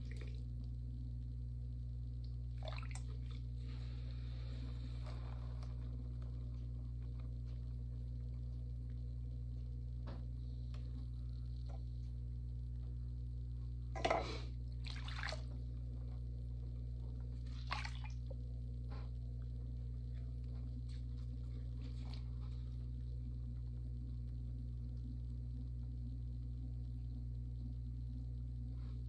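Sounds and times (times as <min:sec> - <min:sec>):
potter's wheel humming: 0:00.0 - 0:29.0
wet splashing and dripping: 0:02.6 - 0:03.4, 0:14.8 - 0:15.6, 0:17.5 - 0:18.2.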